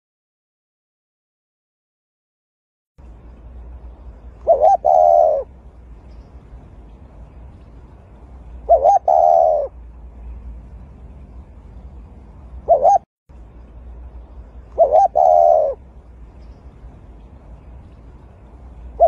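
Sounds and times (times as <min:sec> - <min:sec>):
dove cooing: 0:04.4 - 0:05.6, 0:08.6 - 0:09.8, 0:12.6 - 0:13.0, 0:14.7 - 0:15.8.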